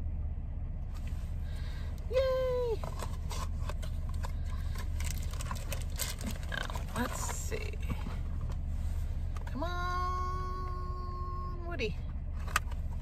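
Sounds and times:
steady low hum: 0.0s - 13.0s
packaging crinkling and clicking: 2.8s - 7.4s.

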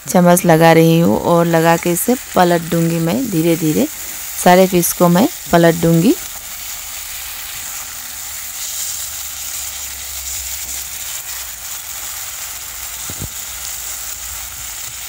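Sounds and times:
fish sizzling in a wok: 0.0s - 15.0s.

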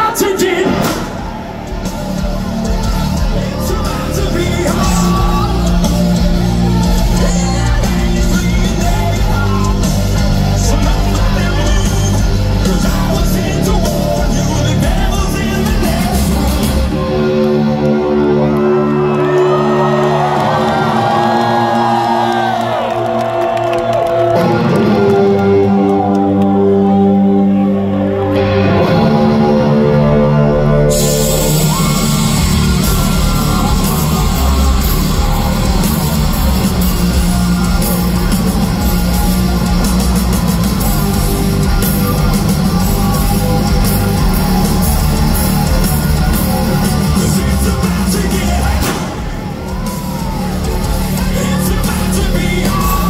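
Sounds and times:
drums and crashing cymbals: 0.0s - 17.7s, 30.8s - 53.0s
rock band playing live: 0.0s - 53.0s
electric guitar chords: 0.6s - 53.0s
person singing: 2.6s - 18.8s, 40.4s - 53.0s.

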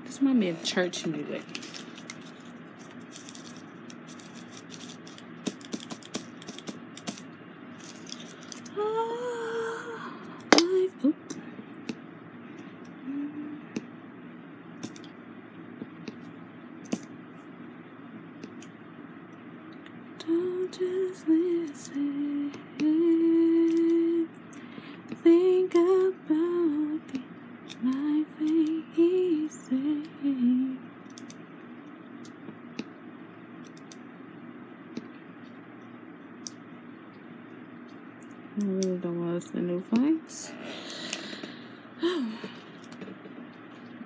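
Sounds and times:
woman humming slow tune: 8.7s - 11.3s, 13.0s - 13.8s, 20.2s - 24.3s, 27.8s - 30.8s, 40.7s - 42.6s.

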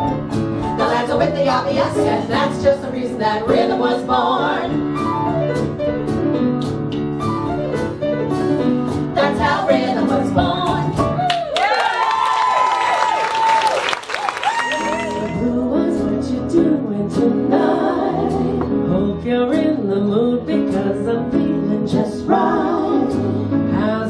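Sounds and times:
piano accompaniment: 0.0s - 11.6s, 14.4s - 24.0s
women singing swing song: 0.7s - 4.8s, 9.1s - 11.1s, 15.1s - 24.0s.

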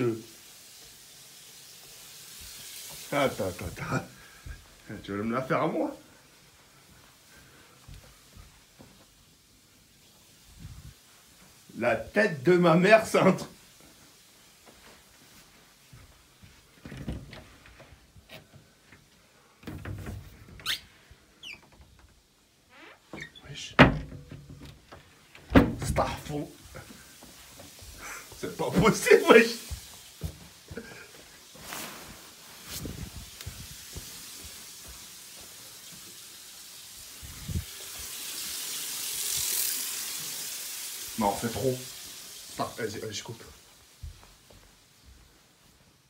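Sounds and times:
shower water running: 0.0s - 46.0s
knocks and rustles of movement: 13.8s - 36.1s, 43.5s - 46.0s.

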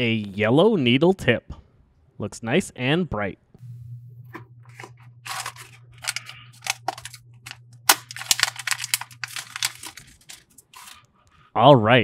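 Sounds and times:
plastic wrapper crinkling: 4.7s - 11.0s.

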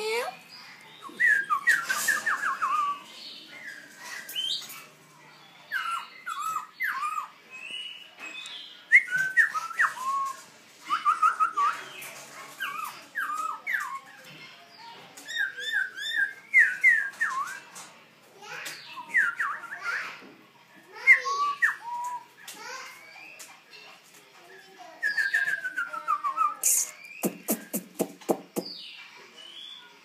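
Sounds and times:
bird singing whistled notes: 1.0s - 3.2s, 5.8s - 11.9s, 15.3s - 17.6s, 18.8s - 20.0s, 21.1s - 22.3s, 25.0s - 27.9s.

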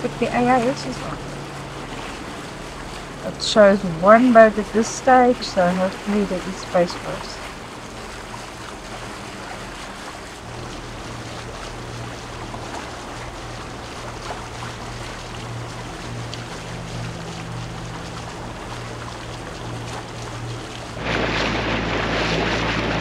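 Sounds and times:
boat engine droning: 0.0s - 23.0s
water rushing: 0.0s - 23.0s
wind noise: 21.0s - 23.0s.

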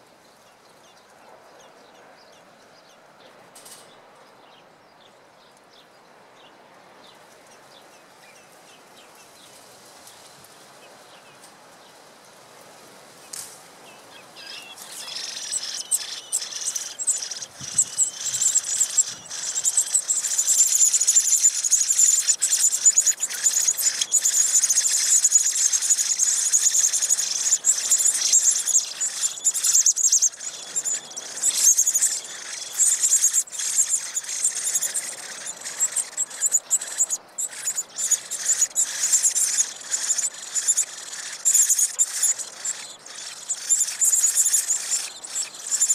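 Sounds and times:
nestlings cheeping: 14.4s - 45.9s.

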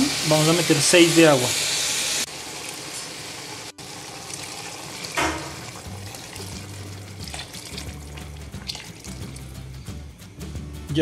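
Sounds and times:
broth pouring and splashing: 2.3s - 9.8s.

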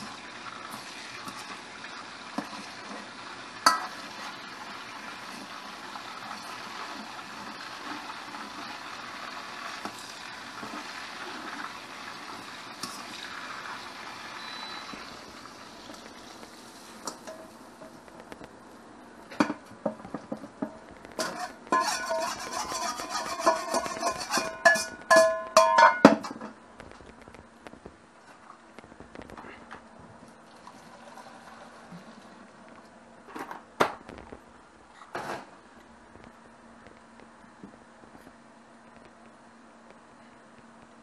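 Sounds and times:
food sizzling in a pan: 0.0s - 18.8s, 20.2s - 26.0s
utensil scraping cookware: 19.4s - 26.5s.

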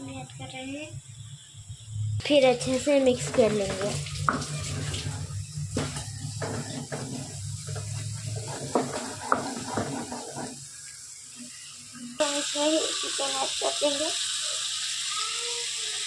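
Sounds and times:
steady low hum: 0.0s - 9.0s
spoon squelching and scraping: 3.2s - 10.6s.

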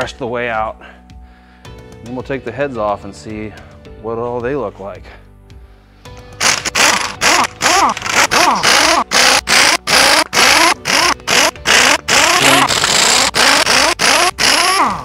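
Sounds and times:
pneumatic impact wrench bursts: 6.4s - 15.0s.

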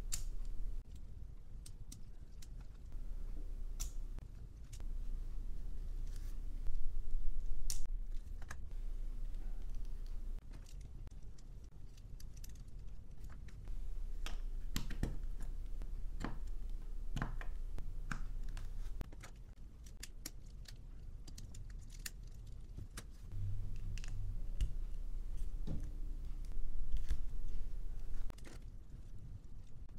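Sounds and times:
plastic parts clicking: 9.6s - 13.6s, 16.2s - 23.2s.

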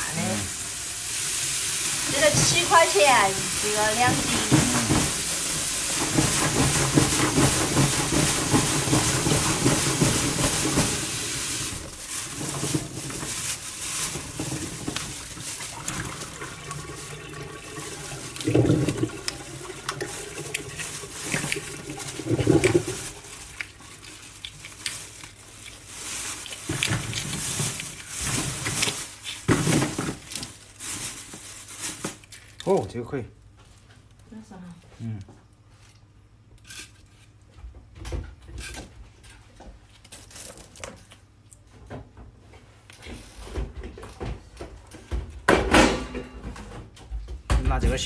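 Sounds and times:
plastic bag rustling: 0.0s - 33.0s, 39.8s - 41.2s.

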